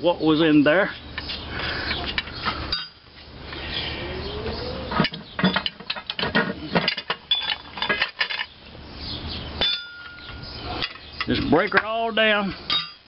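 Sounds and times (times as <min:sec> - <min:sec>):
metal parts clinking and clanking: 0:02.2 - 0:03.0, 0:04.9 - 0:08.6, 0:09.6 - 0:13.0.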